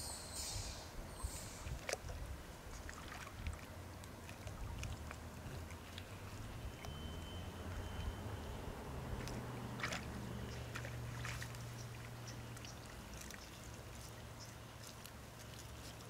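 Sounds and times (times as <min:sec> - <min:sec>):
water sloshing: 0:01.6 - 0:16.0
small splashing clicks: 0:09.2 - 0:16.0.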